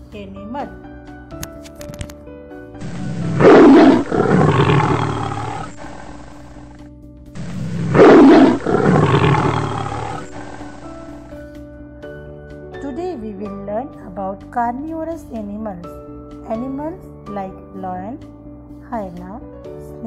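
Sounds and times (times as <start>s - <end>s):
lion roaring: 2.8s - 6.8s, 7.4s - 11.3s.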